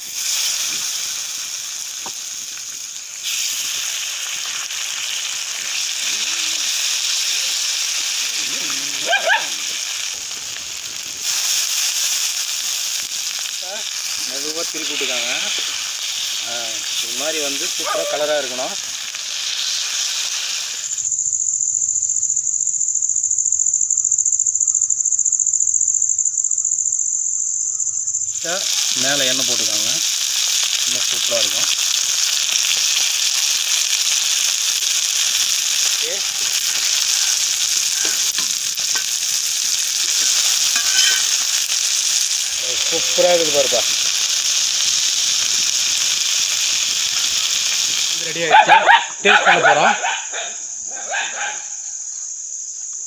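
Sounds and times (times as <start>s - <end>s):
fish sizzling in hot oil: 0.0s - 21.6s, 28.1s - 48.5s
insect trilling: 0.0s - 53.0s.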